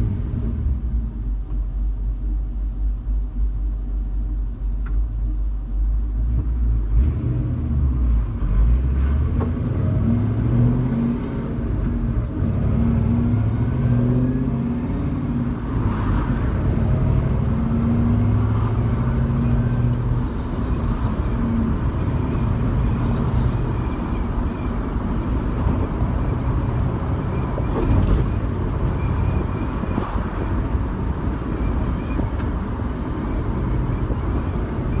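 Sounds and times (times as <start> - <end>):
car engine accelerating: 6.0 - 24.4.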